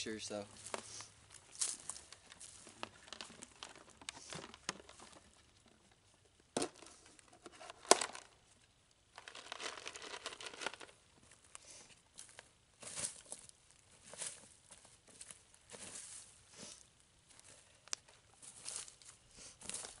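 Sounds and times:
footsteps crunching through dry leaves: 0:00.5 - 0:05.0, 0:12.2 - 0:17.6, 0:18.3 - 0:20.0
crinkling rustle: 0:00.5 - 0:08.4, 0:09.1 - 0:20.0.

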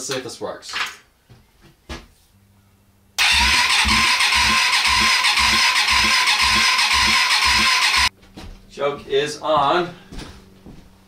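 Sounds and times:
starter cranking motorcycle engine: 0:03.2 - 0:08.1.

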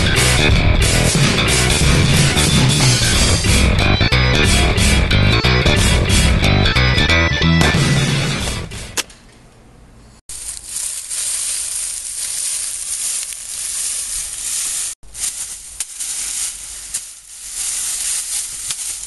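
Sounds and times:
rock music: 0:00.0 - 0:08.8
dry leaves rustling and crunching: 0:10.3 - 0:19.0.

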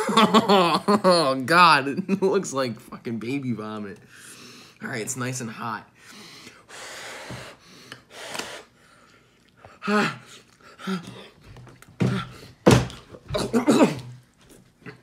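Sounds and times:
man gasping and choking: 0:12.0 - 0:14.2.

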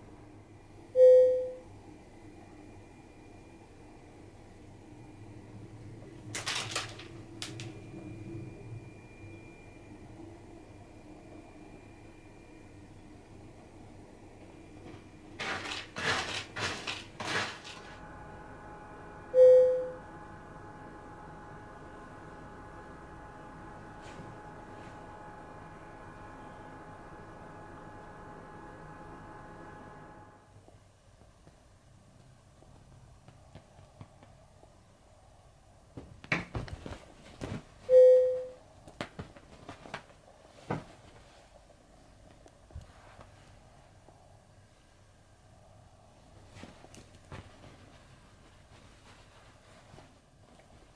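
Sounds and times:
cat scratching in litter: 0:15.4 - 0:18.0.

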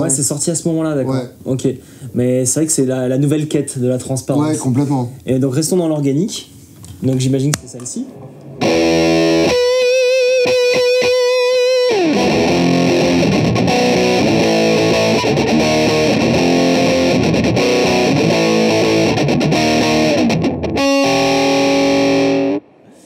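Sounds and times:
fuzz electric guitar: 0:08.6 - 0:22.8.

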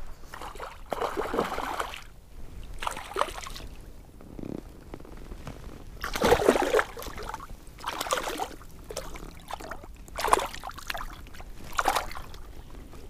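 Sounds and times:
fish thrashing and splashing: 0:06.0 - 0:12.5.

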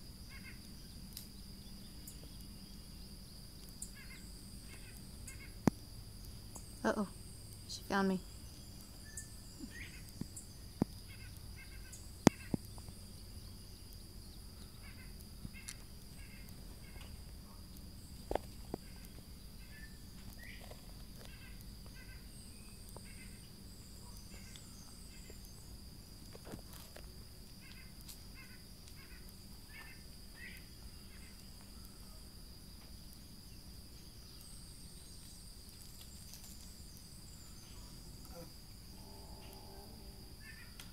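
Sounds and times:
high-pitched insect drone: 0:00.2 - 0:40.9
bird chirps: 0:07.7 - 0:17.8, 0:18.8 - 0:25.6.

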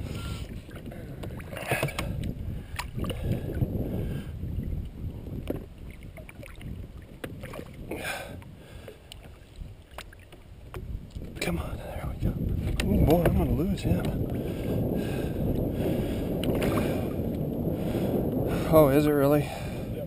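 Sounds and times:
water sloshing and splashing: 0:00.0 - 0:14.8, 0:16.3 - 0:17.5.

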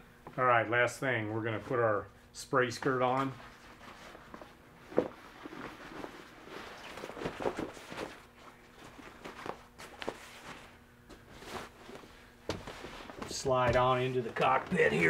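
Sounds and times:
fabric rustling: 0:03.2 - 0:13.4
footsteps on carpet: 0:08.8 - 0:14.6.

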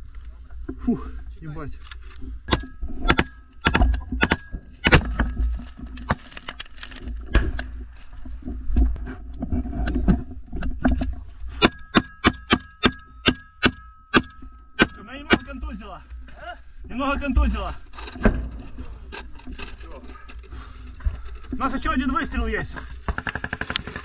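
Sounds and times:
rifle shots: 0:23.1 - 0:24.0.

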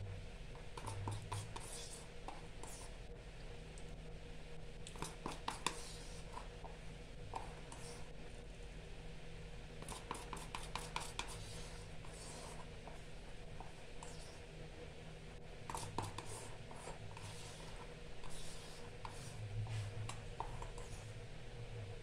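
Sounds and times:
spatula scraping rubber bowl: 0:15.7 - 0:21.2.

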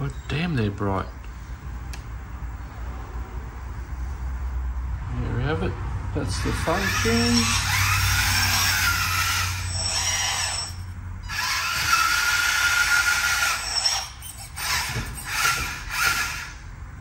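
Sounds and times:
electric motor and gearbox whining: 0:06.3 - 0:17.0.

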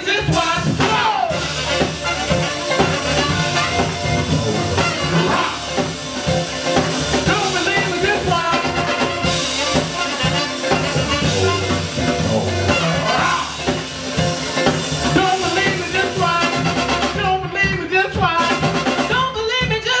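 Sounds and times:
people singing: 0:00.0 - 0:01.6, 0:03.1 - 0:06.0, 0:10.9 - 0:13.9
drum kit: 0:00.0 - 0:20.0
live funk band playing: 0:00.0 - 0:20.0.

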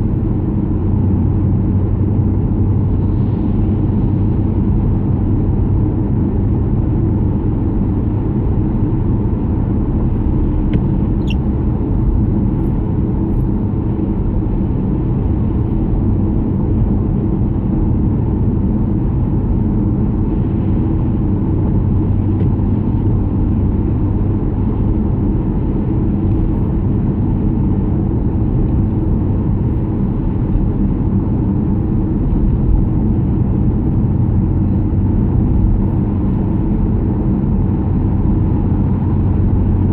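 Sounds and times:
car cabin road rumble: 0:00.0 - 0:39.9.

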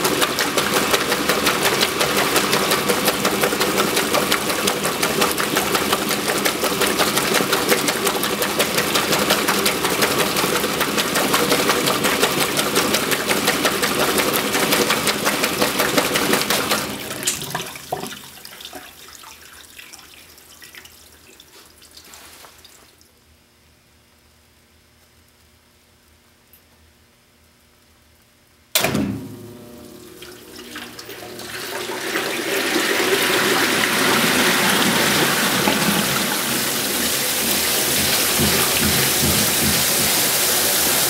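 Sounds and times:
water sloshing: 0:00.0 - 0:20.0
washing machine agitating: 0:00.0 - 0:22.7, 0:29.2 - 0:41.0.

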